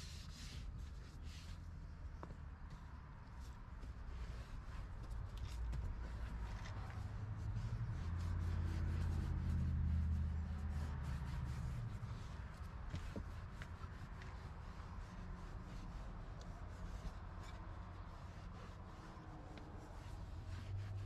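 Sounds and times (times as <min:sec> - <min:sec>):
towel rubbing on leather: 0:00.0 - 0:01.6, 0:03.4 - 0:21.0
low droning hum: 0:04.9 - 0:21.0.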